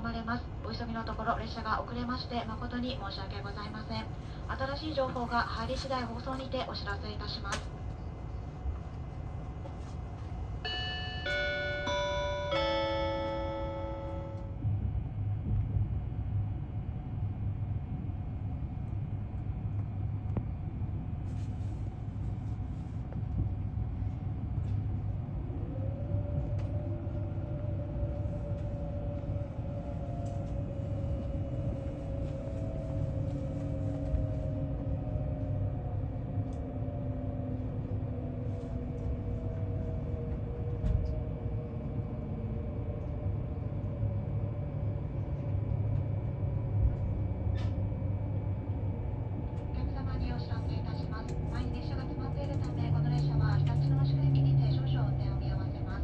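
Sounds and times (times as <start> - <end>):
train running rumble: 13.0 - 56.0.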